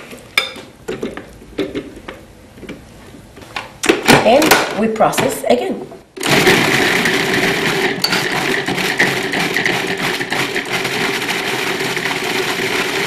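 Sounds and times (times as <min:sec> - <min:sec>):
food processor running: 0:06.2 - 0:13.0.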